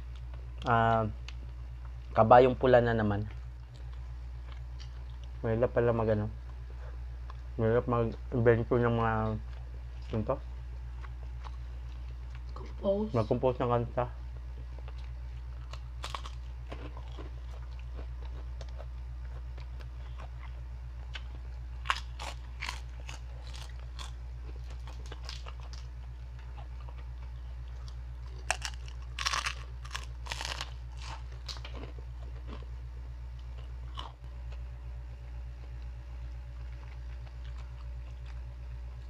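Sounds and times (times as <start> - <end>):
steady low hum: 0.0 - 39.0
pork rinds crunching: 14.8 - 32.7, 33.4 - 34.2.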